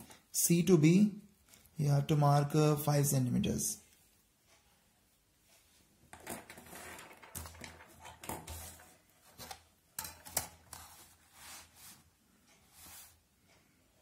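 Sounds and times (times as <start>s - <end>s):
compass and ruler clicks and knocks: 6.1s - 10.9s.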